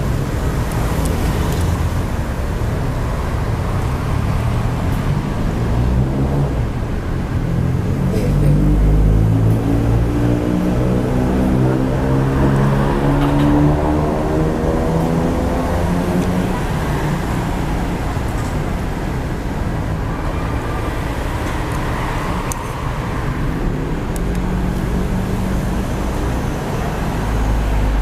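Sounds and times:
road noise rumble: 0:00.0 - 0:28.0
vehicle engine passing: 0:03.7 - 0:23.2.

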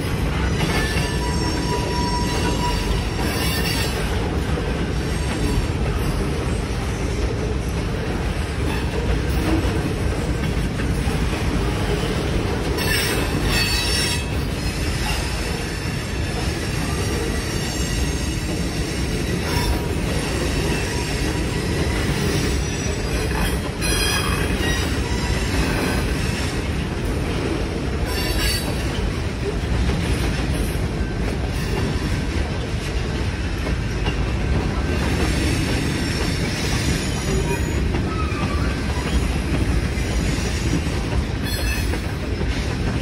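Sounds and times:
freight train cars rolling: 0:00.0 - 0:43.0
high-pitched wheel squeal: 0:00.8 - 0:04.0, 0:12.8 - 0:15.2.

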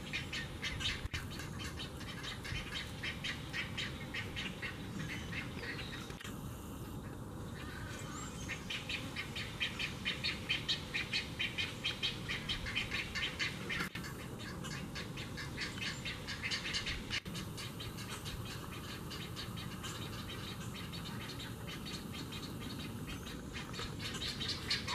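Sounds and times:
egret chicks harsh begging calls: 0:08.5 - 0:24.9.

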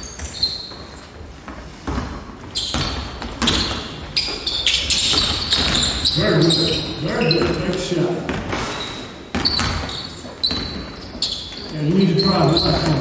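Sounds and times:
sneakers squeaking: 0:00.0 - 0:13.0
basketball bouncing on hardwood: 0:01.8 - 0:04.3, 0:04.9 - 0:06.1, 0:08.3 - 0:08.6, 0:09.3 - 0:11.0.

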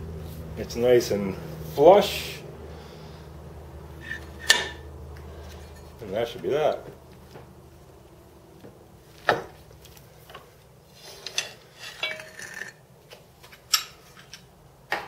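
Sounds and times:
metal clinks and knocks: 0:11.2 - 0:12.8.

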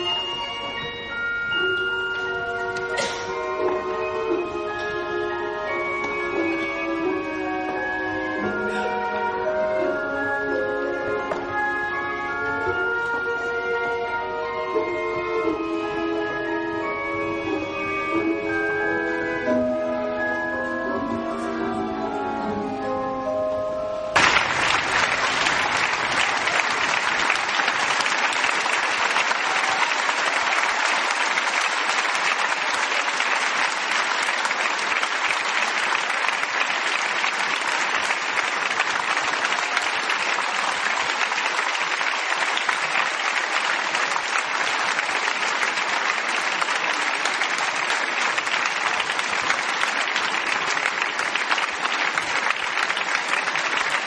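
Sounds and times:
audience applauding: 0:24.2 - 0:54.0.

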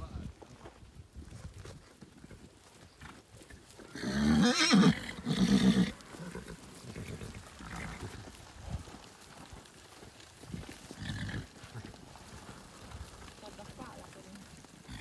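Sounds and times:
herd moving: 0:00.0 - 0:15.0
horse whinnying loudly: 0:03.9 - 0:08.1.

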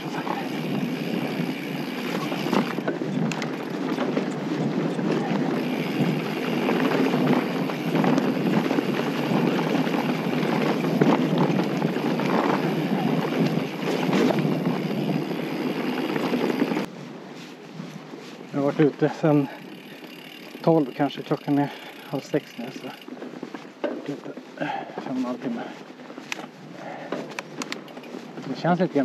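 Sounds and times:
bike tyres rolling on gravel: 0:00.0 - 0:29.0
wind noise on microphone: 0:00.6 - 0:17.1.

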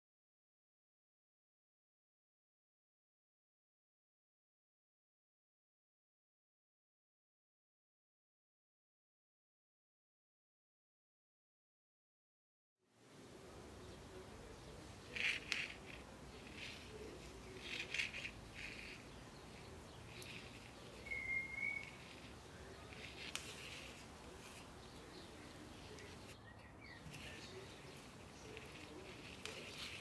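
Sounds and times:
knitting needles clicking: 0:14.9 - 0:26.4, 0:27.0 - 0:30.0.

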